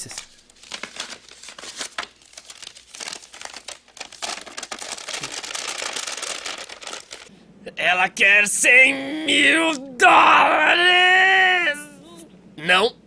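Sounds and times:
paper crinkling: 0.0s - 7.3s.

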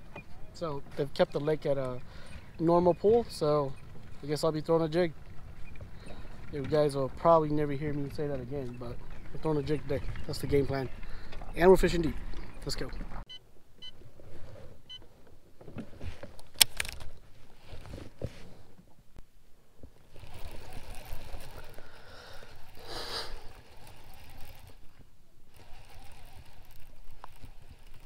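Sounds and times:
rustling: 14.0s - 19.0s
fishing reel clicks: 20.1s - 24.9s, 25.5s - 28.0s.

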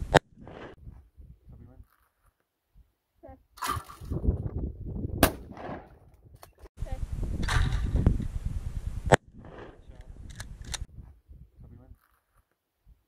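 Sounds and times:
wind rumbling on microphone: 0.0s - 1.8s, 3.6s - 12.0s
shotgun shots: 5.2s - 6.1s.

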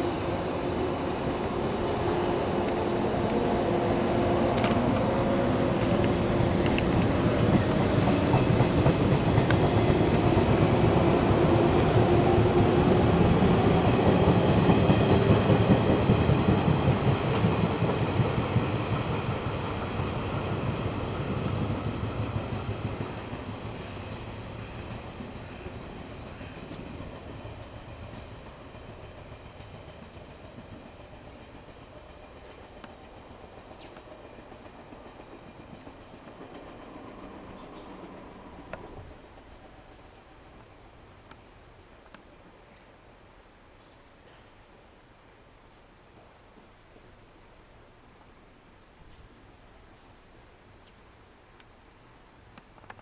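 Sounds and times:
train wheels clacking on rails: 0.0s - 40.8s.

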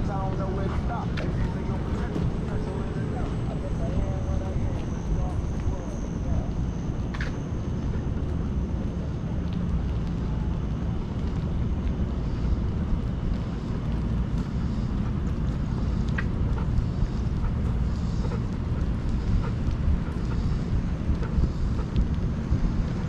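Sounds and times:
wind buffeting microphone: 0.0s - 23.0s
faint clicks: 9.4s - 23.0s.

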